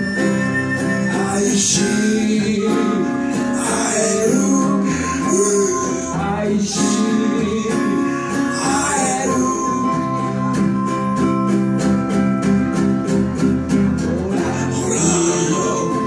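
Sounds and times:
acoustic guitars strumming: 0.0s - 16.0s
person singing: 0.9s - 11.1s, 14.0s - 16.0s.

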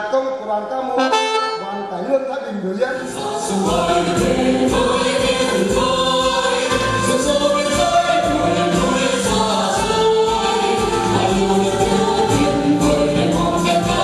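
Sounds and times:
group of voices singing: 2.9s - 14.0s
sustained instrumental accompaniment: 2.9s - 14.0s
steady beat: 3.2s - 14.0s.

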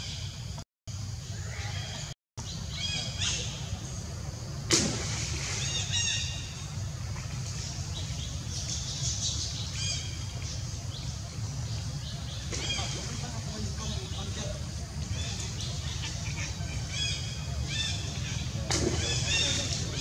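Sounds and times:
sharp crack: 4.7s - 5.4s
high chirping animal calls: 14.3s - 20.0s.

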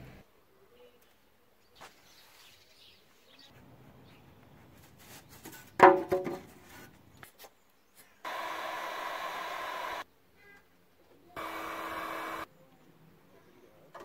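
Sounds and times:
wooden strips knocking together: 5.8s - 6.5s
heat gun blowing: 8.3s - 10.0s, 11.4s - 12.5s.

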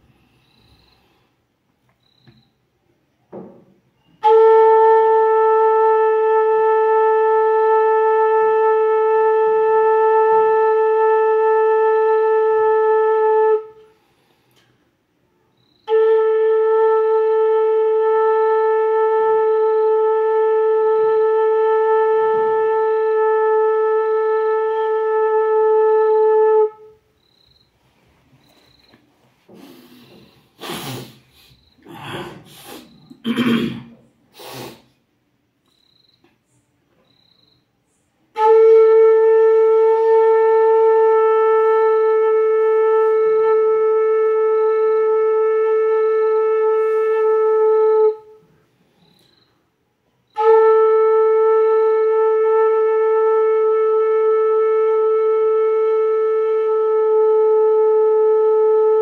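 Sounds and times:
breathy puffs into flute: 0.0s - 1.5s, 29.4s - 33.2s, 34.3s - 35.0s
flute long steady note: 4.0s - 14.3s, 15.4s - 27.4s, 37.5s - 48.6s, 50.1s - 59.0s.

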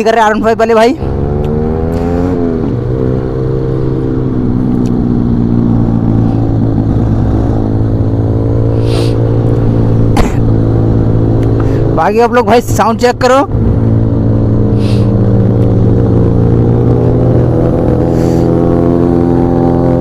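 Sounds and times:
motorcycle engine: 0.0s - 20.0s.

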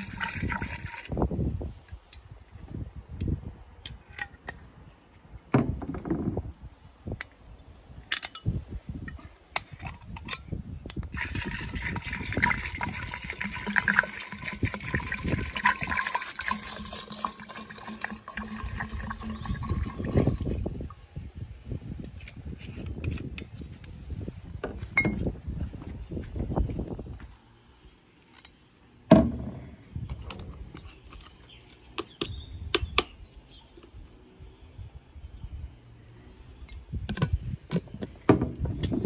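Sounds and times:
liquid pouring into glass jar: 0.0s - 1.1s, 11.1s - 20.7s.

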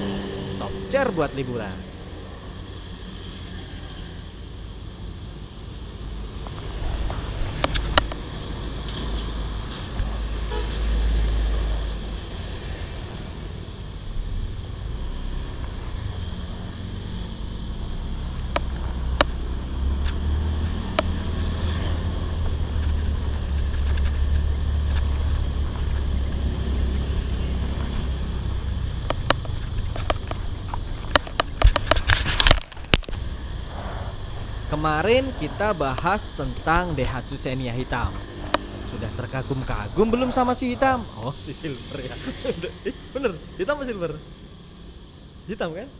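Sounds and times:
road traffic passing: 0.0s - 45.9s
steady low rumble: 20.6s - 44.2s.

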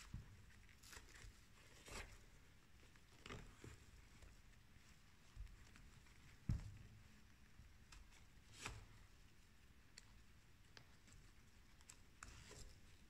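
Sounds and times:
harness soft thump: 6.4s - 7.0s.

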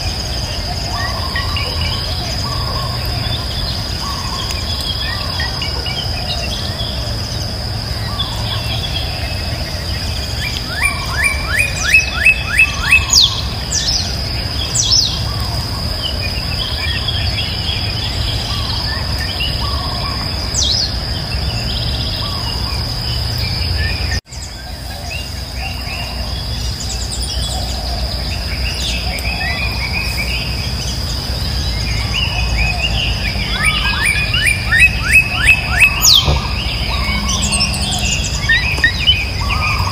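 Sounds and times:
birds calling: 0.0s - 39.9s
high insect drone: 0.0s - 39.9s
bird whistles: 32.7s - 39.9s
quick repeated bird chirps: 33.0s - 39.9s.

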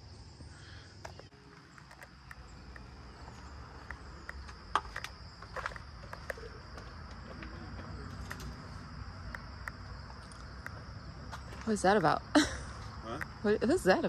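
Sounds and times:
high insect drone: 0.0s - 14.0s
footsteps on gravel: 2.8s - 8.3s.

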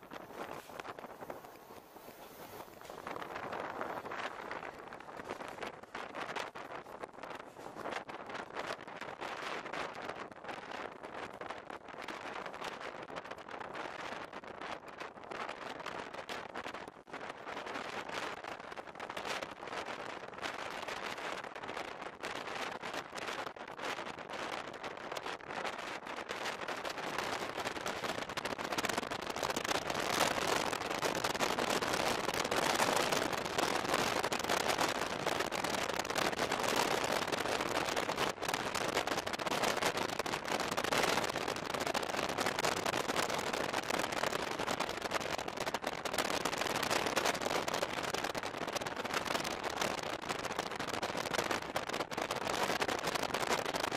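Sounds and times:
wind rushing over microphone: 0.0s - 53.9s
train wheels on rail: 0.2s - 5.4s.

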